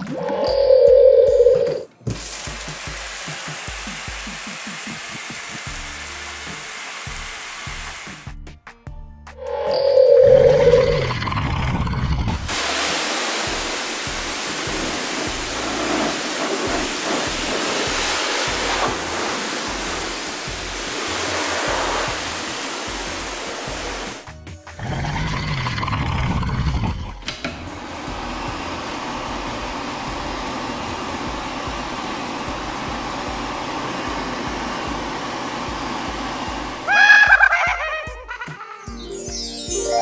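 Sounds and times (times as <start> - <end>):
background music: 0.0 - 12.6, 17.3 - 40.0
hissing rushing blast: 12.5 - 24.2.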